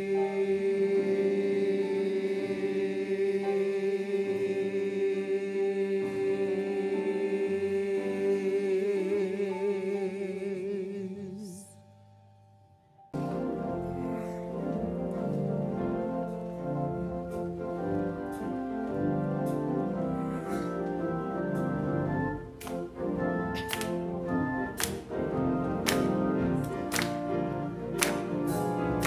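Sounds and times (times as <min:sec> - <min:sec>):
vocal ensemble singing chord: 0:00.0 - 0:11.8, 0:13.2 - 0:29.0
organ chords: 0:00.0 - 0:29.0.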